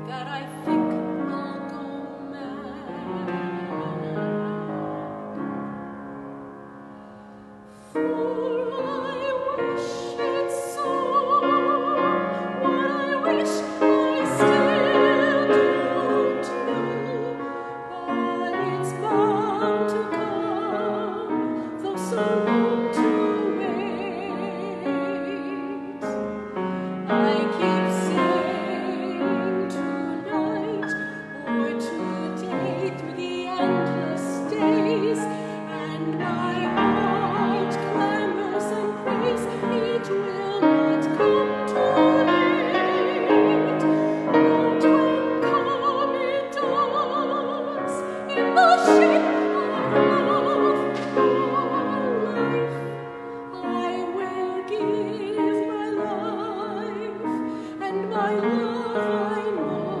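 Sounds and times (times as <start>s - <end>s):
soprano singing with vibrato: 0.0s - 5.7s, 7.8s - 60.0s
piano accompaniment: 0.0s - 60.0s.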